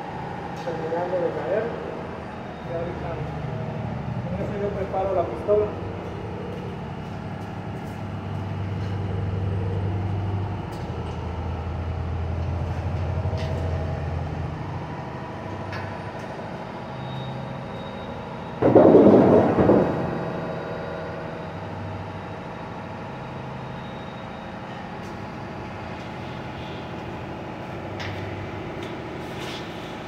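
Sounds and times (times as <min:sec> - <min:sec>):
low mechanical drone: 0:00.0 - 0:30.0
loud rush of noise: 0:18.6 - 0:22.2.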